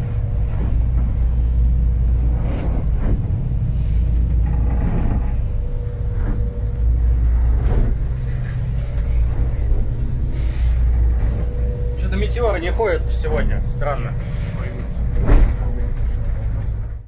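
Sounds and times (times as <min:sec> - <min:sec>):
boat engine drone: 0:00.0 - 0:17.0
hull thudding on waves: 0:00.0 - 0:17.0.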